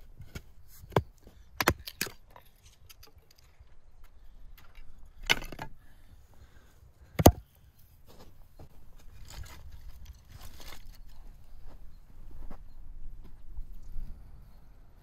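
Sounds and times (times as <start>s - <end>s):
axe striking firewood: 0.9s - 2.2s, 5.2s - 5.7s, 7.2s - 7.4s.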